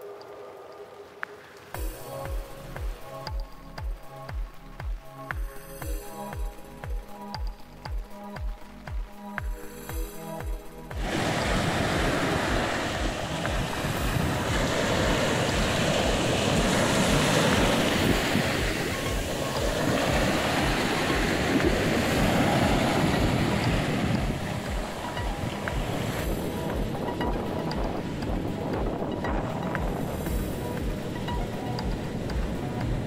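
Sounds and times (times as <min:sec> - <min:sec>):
background music bass beat: 0:01.8 - 0:33.0
sea waves breaking: 0:08.2 - 0:33.0.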